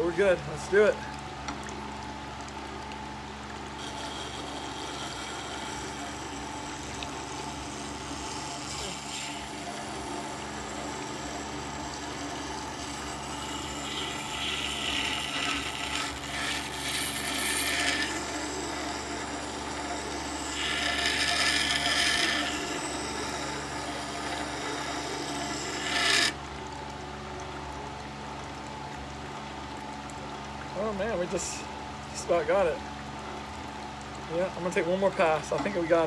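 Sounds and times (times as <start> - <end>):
grinding stone humming: 3.7 - 26.4
blade rasping on grinding stone: 3.8 - 26.4.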